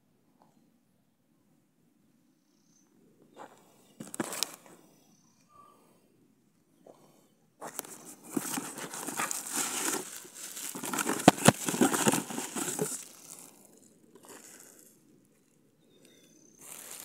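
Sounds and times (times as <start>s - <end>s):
cardboard and plastic wrap rustling: 4.0s - 4.6s, 7.6s - 13.5s, 16.6s - 17.0s.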